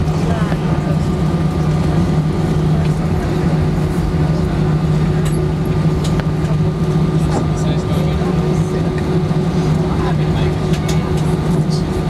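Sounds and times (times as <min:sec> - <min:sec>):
low jet engine hum: 0:00.0 - 0:12.0
light clicks in cabin: 0:10.7 - 0:11.4.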